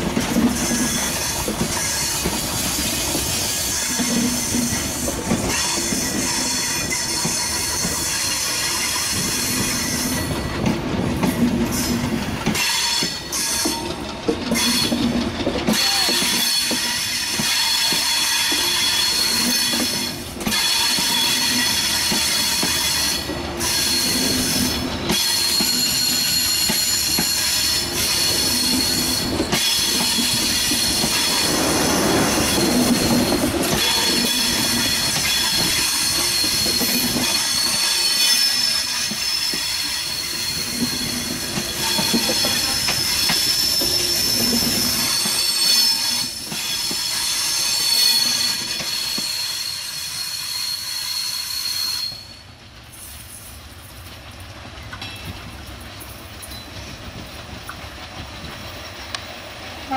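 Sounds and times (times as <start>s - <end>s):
train wheels rumbling on rails: 0.0s - 59.9s
high-pitched wheel squeal: 15.8s - 31.4s, 32.4s - 52.4s.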